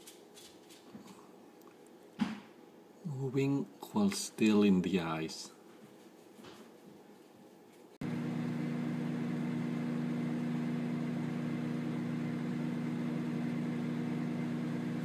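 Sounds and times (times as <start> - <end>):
motor humming: 8.0 - 15.0.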